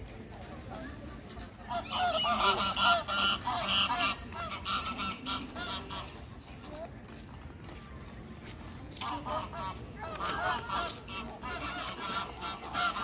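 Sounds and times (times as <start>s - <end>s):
geese honking: 1.7s - 6.2s, 9.0s - 13.0s.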